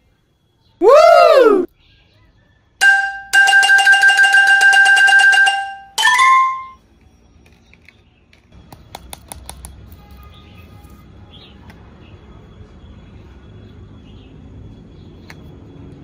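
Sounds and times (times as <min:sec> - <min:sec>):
short electronic beep: 0:02.8 - 0:04.3
high electronic chime: 0:02.8 - 0:06.8.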